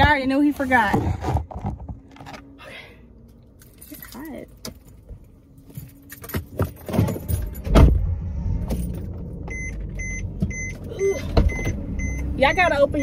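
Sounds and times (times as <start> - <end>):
low steady rumble: 0.0 - 13.0
loud thump: 7.7 - 8.1
car warning chime beeping: 9.4 - 13.0.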